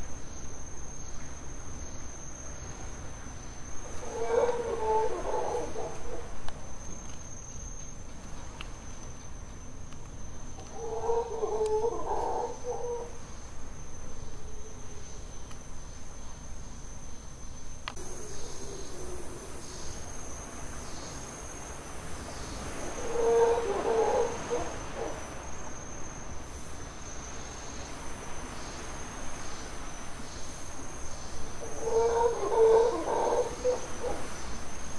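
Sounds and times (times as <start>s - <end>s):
howler monkeys calling: 3.8s - 6.4s, 10.6s - 13.2s, 22.8s - 25.4s, 31.5s - 34.6s
high insect buzz: 10.2s - 34.9s.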